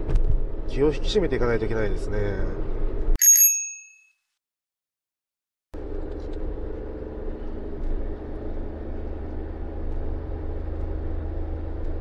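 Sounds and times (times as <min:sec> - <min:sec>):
road noise rumble: 0:00.0 - 0:03.2, 0:05.8 - 0:12.0
van engine drone: 0:00.0 - 0:03.2, 0:05.8 - 0:12.0.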